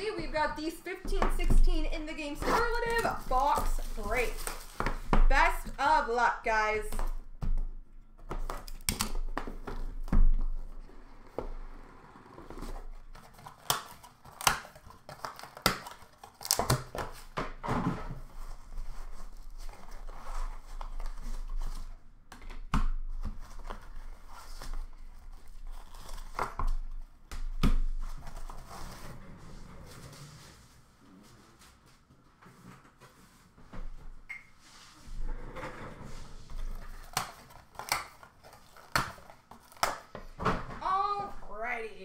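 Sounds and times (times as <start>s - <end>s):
plastic wrapping crinkling: 2.4s - 5.0s.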